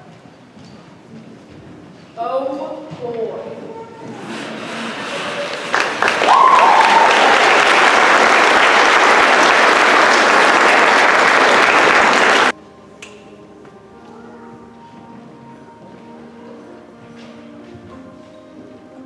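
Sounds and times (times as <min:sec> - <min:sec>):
audience applauding: 0:04.3 - 0:12.5
whoop or whistle: 0:06.2 - 0:07.6
soft music: 0:12.5 - 0:19.0.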